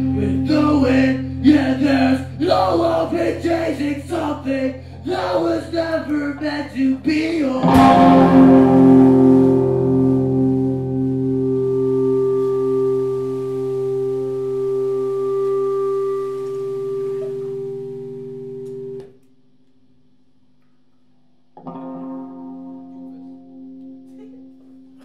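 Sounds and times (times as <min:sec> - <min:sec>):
guitar chord ringing: 0:07.6 - 0:19.2, 0:21.6 - 0:25.0.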